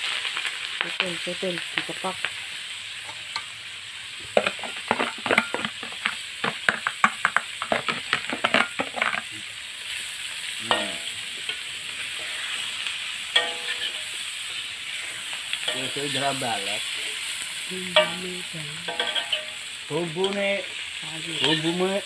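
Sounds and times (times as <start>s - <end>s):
wok sizzling: 0.0s - 22.0s.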